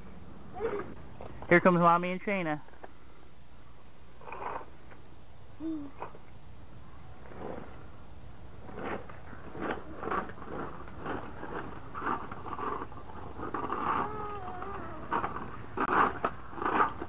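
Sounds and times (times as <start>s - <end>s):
child's voice: 0.5s - 1.0s, 5.6s - 6.1s, 13.8s - 15.2s.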